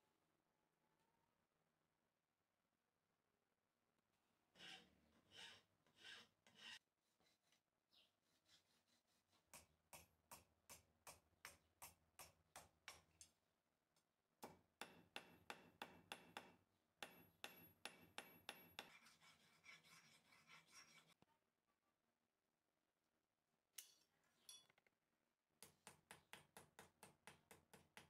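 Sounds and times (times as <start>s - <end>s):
file rasping on metal: 4.6s - 6.8s, 17.9s - 21.2s.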